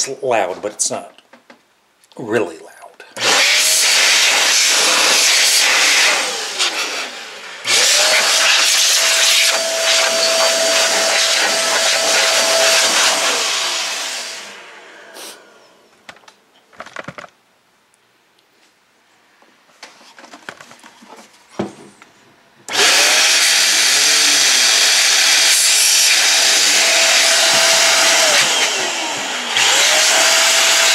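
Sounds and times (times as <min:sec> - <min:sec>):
electric air duster blowing: 0:03.2 - 0:15.7, 0:22.7 - 0:30.9
handling clicks and knocks: 0:16.0 - 0:17.4.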